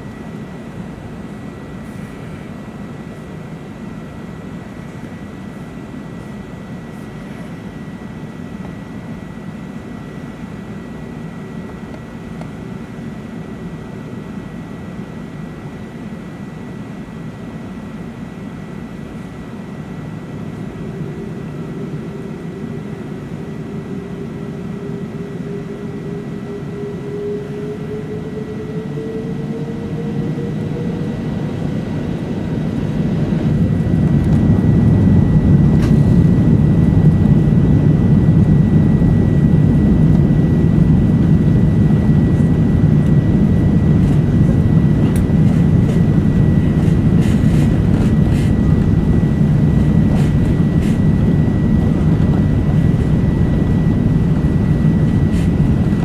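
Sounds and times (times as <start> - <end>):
jet engine whine rising: 0.0 - 56.0
loud low engine rumble: 20.5 - 56.0.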